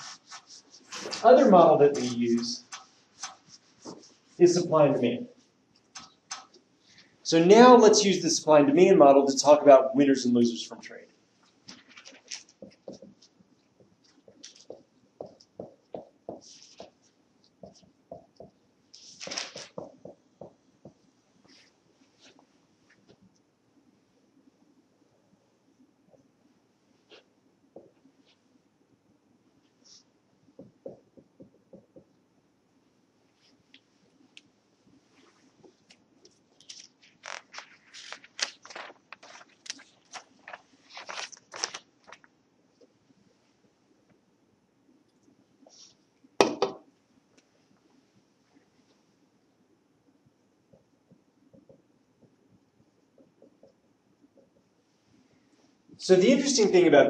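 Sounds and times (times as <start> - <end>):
marker writing on whiteboard: 0.0 - 4.6, 5.8 - 6.7, 12.1 - 21.7, 30.6 - 32.1
scratchy rustling and crinkling: 0.0 - 7.1, 11.4 - 15.7, 16.3 - 17.9, 18.9 - 20.1, 35.0 - 42.3.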